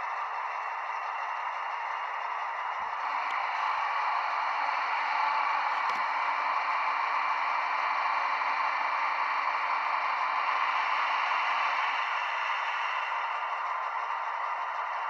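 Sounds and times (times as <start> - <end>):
click: 3.2 - 3.4, 5.7 - 6.1.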